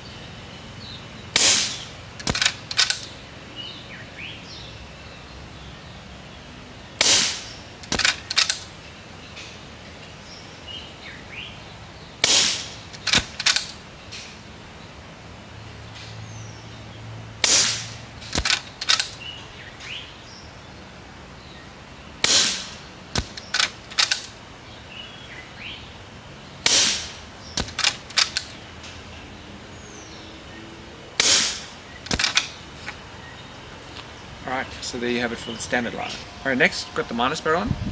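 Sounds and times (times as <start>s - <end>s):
air rifle shot crack: 1.4s - 3.1s, 7.0s - 8.6s, 12.2s - 13.8s, 17.4s - 19.2s, 22.2s - 24.2s, 26.6s - 28.5s, 31.2s - 32.6s
short sharp clicks: 12.2s - 14.3s, 17.4s - 19.2s, 22.2s - 24.3s, 31.2s - 32.5s.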